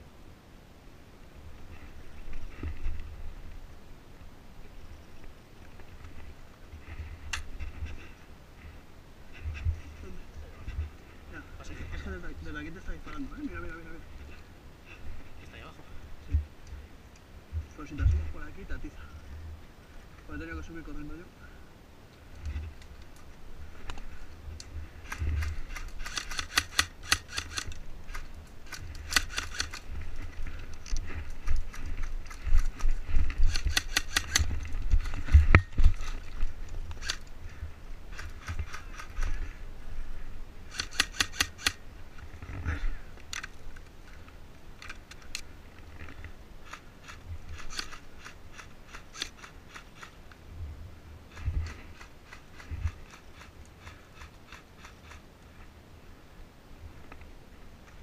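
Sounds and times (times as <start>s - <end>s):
airsoft guns firing bursts: 25.7s - 27.7s, 33.5s - 34.5s, 40.7s - 41.8s.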